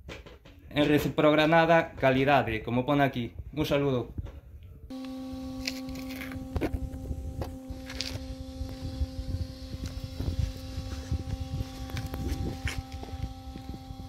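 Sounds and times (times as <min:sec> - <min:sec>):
steady hum: 0:04.9 - 0:14.0.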